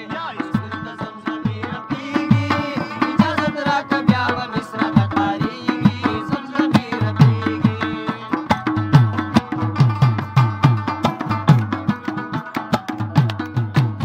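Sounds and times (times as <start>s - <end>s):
plucked rubab melody: 0.0s - 14.0s
tabla drumming: 0.0s - 14.0s.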